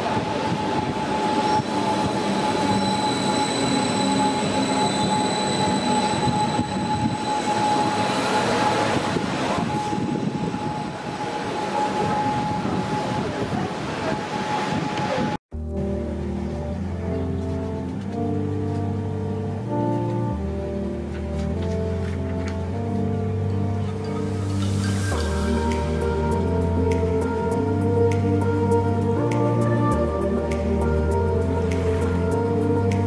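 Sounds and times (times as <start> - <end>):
high-pitched train whine: 0.0 - 15.4, 24.0 - 32.8.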